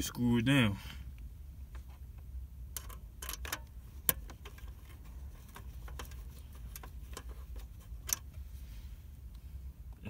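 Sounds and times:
steady low rumble: 0.0s - 10.0s
small clicks and taps on metal: 2.7s - 8.3s.

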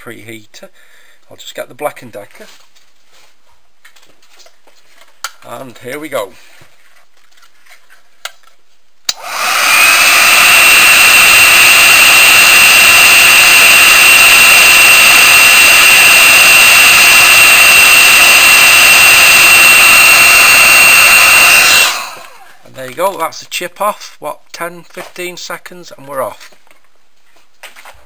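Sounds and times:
hot air gun fan rushing: 9.1s - 22.5s
steady high whine: 9.1s - 22.6s.

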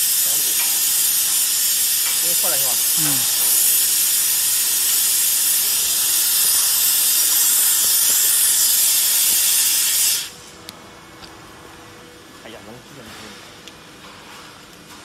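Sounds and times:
plasma cutter compressed air hiss: 0.0s - 10.5s.

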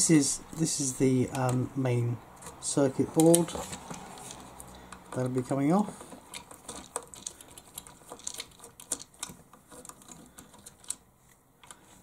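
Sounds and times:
screwdriver clicking on plastic: 3.2s - 11.0s.

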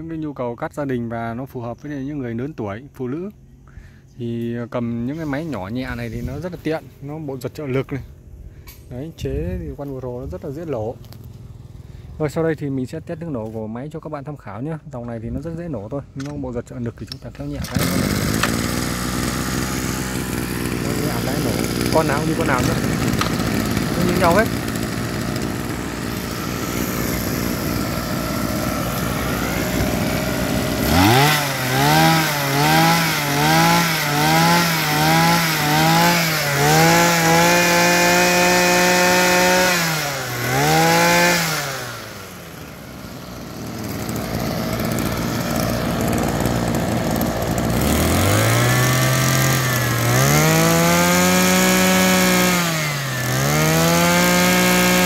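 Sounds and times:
brush cutter engine revving: 16.2s - 55.0s.

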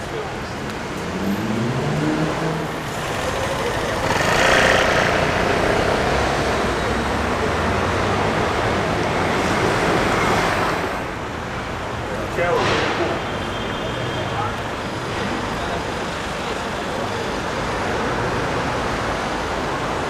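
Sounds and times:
city street traffic: 0.0s - 20.0s
vehicle passing close: 0.8s - 11.2s.

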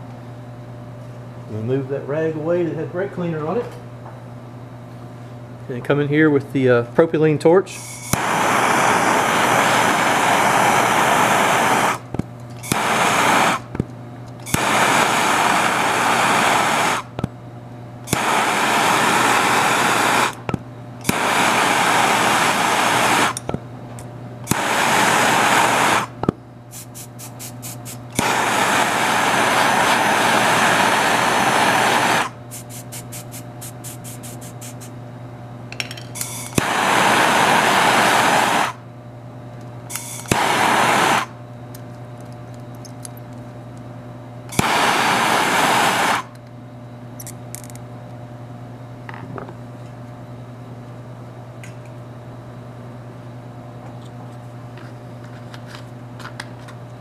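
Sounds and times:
torch flame hissing: 7.8s - 13.8s, 14.4s - 17.2s, 18.1s - 23.5s, 24.5s - 34.9s, 36.2s - 38.8s, 39.9s - 41.4s, 44.5s - 46.3s.

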